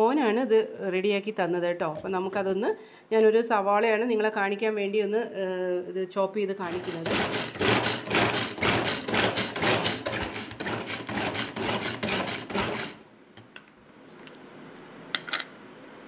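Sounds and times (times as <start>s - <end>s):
pull-cord chopper rasping whirr: 6.6s - 13.0s.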